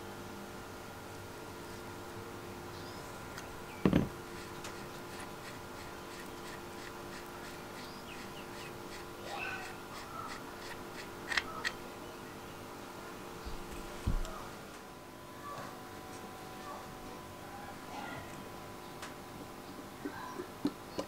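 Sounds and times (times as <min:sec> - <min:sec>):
knock on workbench: 0:03.8 - 0:04.1
squeaky scrape: 0:04.3 - 0:11.6.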